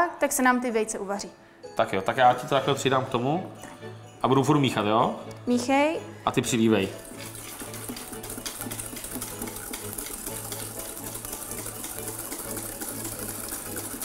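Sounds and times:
whisk rattling in metal bowl: 6.4 - 14.0.

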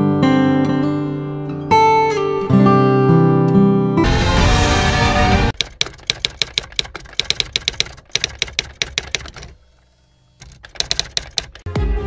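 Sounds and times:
typewriter key clicks: 5.6 - 9.6, 10.4 - 11.7.

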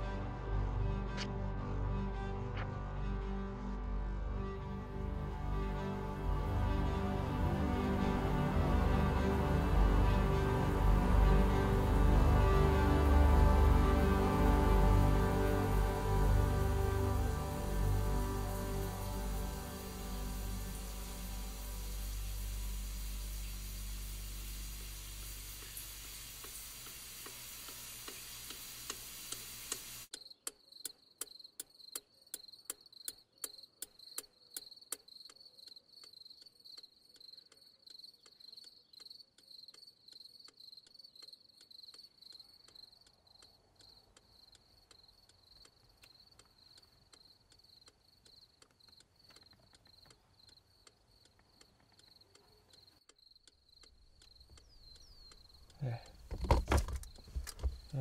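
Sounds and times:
loud steady hiss: 6.7 - 30.1
rapid ticking clicks: 28.0 - 56.3
crickets chirping: 30.1 - 58.0.

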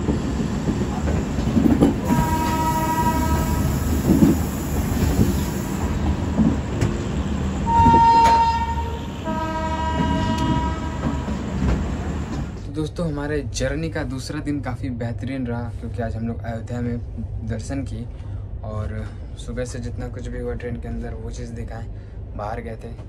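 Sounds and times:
train rumbling: 0.0 - 23.0
locomotive horn blasts: 2.0 - 3.9, 7.6 - 11.5.

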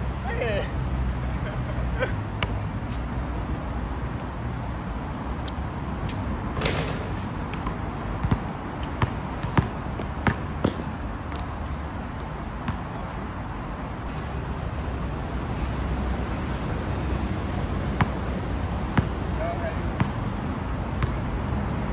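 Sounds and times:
basketball bouncing on hard court: 6.6 - 11.5, 18.0 - 18.2, 18.9 - 19.2, 20.9 - 21.2.

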